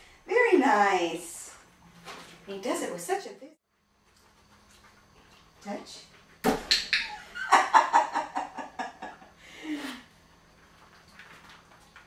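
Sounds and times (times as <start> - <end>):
person laughing: 7.1 - 10.0.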